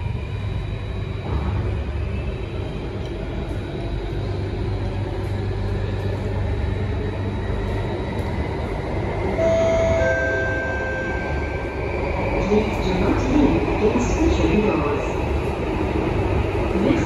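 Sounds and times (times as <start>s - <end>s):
train wheels rumbling: 0.0s - 17.0s
high steady tone: 9.4s - 12.0s.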